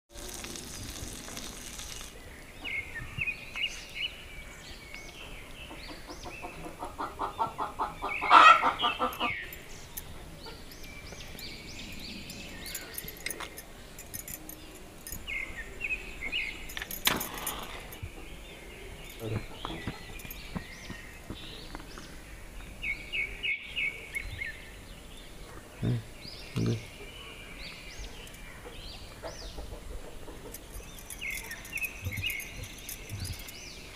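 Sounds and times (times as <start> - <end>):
small birds chirping: 0.2 - 33.9
chicken clucking and cackling: 5.8 - 9.4.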